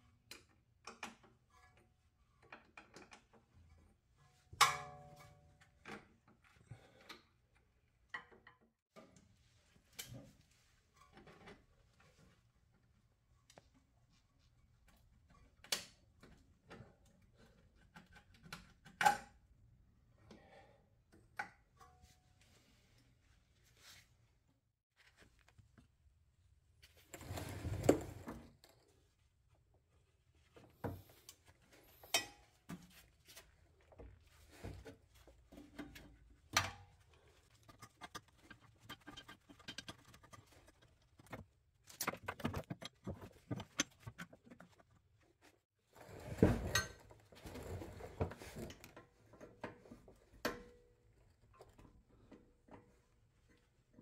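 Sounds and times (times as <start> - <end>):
wrenches clicking and clinking on metal: 37.1 - 45.0.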